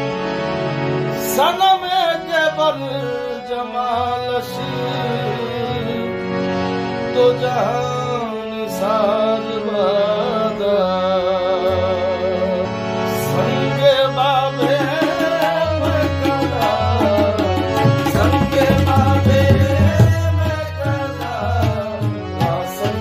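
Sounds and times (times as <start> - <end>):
harmonium melody: 0.0 - 23.0
person singing: 7.2 - 23.0
tabla drumming: 14.6 - 23.0.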